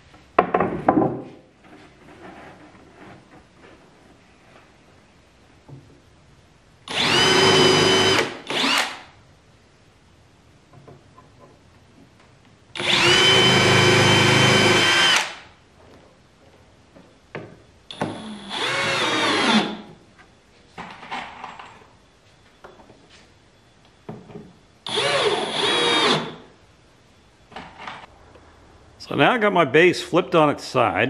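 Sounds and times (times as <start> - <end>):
knocks of handling wood: 0.4 - 1.5
cordless drill whine: 6.9 - 9.0, 12.8 - 15.4, 17.9 - 19.8, 24.8 - 26.4.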